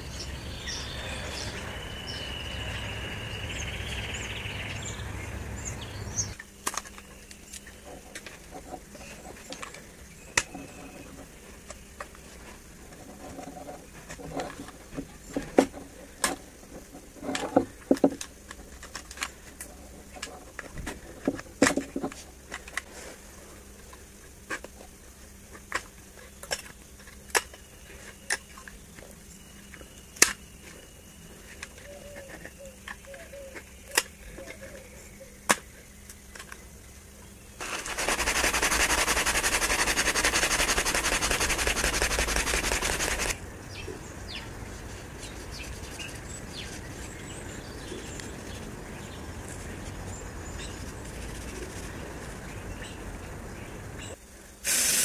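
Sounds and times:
steady outdoor hiss: 0:00.0 - 0:55.0
cloth scrubbing on steel: 0:37.6 - 0:43.4.

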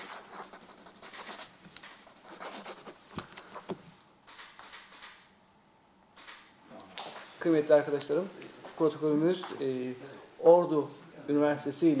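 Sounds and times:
pens scratching on paper: 0:00.0 - 0:03.9
papers being shuffled: 0:00.0 - 0:04.0.

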